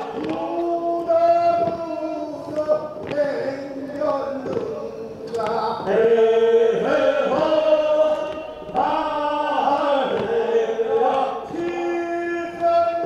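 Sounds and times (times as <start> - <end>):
voices chanting together: 0.0 - 13.0.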